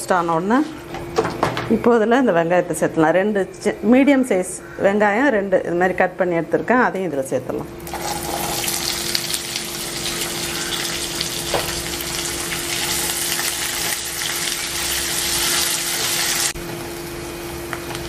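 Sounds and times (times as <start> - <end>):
onions sizzling in oil: 7.8 - 17.2.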